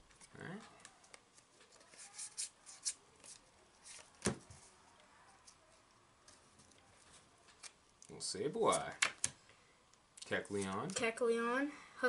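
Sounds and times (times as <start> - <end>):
cards rustling: 0.1 - 4.8.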